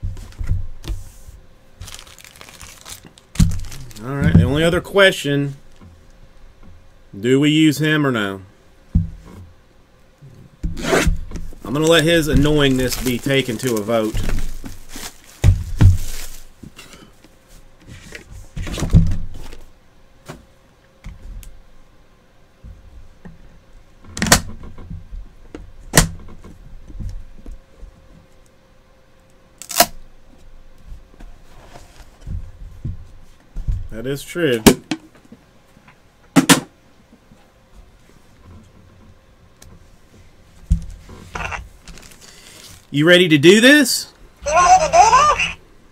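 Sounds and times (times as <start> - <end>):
handling noise: 10.7 - 16.8.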